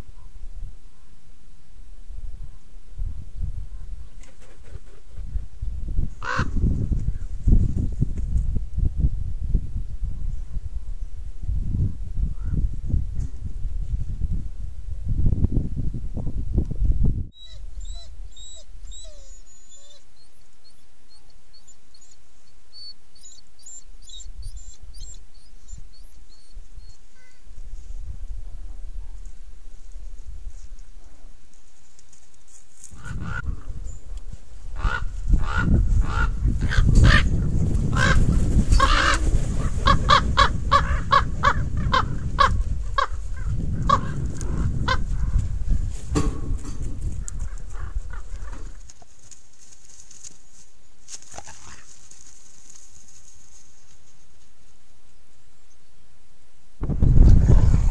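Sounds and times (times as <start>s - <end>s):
wind rumble on microphone: 2.0s - 18.4s, 27.5s - 31.2s, 32.8s - 48.9s, 56.8s - 57.9s
ravens cawing: 6.2s - 6.6s, 34.8s - 37.3s, 37.9s - 43.2s
small birds chirping: 17.4s - 27.5s.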